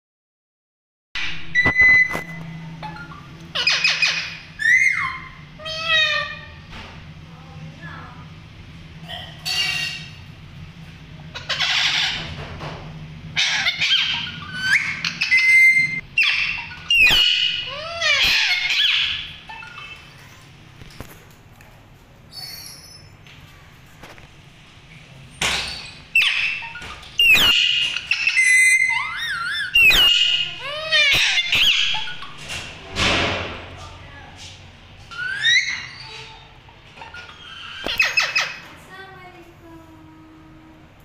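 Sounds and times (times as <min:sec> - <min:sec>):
parakeets squawking: 0:01.2 - 0:06.7, 0:09.1 - 0:10.3, 0:11.2 - 0:12.4, 0:13.3 - 0:20.5, 0:25.6 - 0:32.7, 0:35.1 - 0:38.7.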